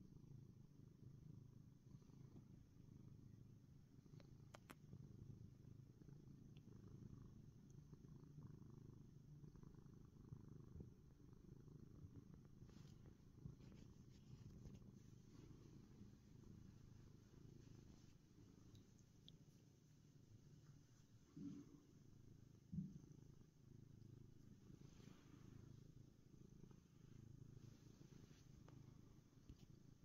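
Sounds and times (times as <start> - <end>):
cat purring: 0.0 - 30.0
faint rustles and clicks: 11.9 - 23.0, 24.0 - 30.0.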